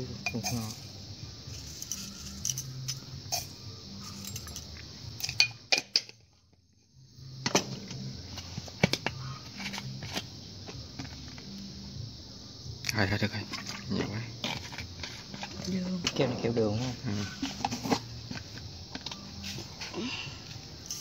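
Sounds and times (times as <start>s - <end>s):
utensils clinking against dishes: 0.2s - 0.9s, 1.6s - 6.2s.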